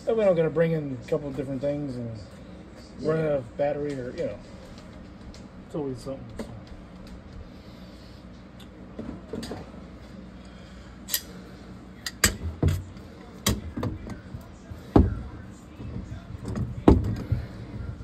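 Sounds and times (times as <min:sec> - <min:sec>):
hard objects knocking and clattering: 0:13.5 - 0:17.8.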